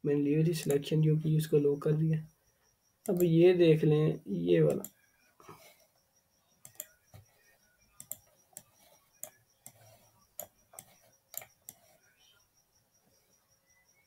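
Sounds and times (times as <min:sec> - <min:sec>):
computer mouse clicks: 0:00.5 - 0:00.8, 0:03.0 - 0:03.3, 0:04.7 - 0:05.0, 0:06.6 - 0:07.3, 0:08.0 - 0:12.0.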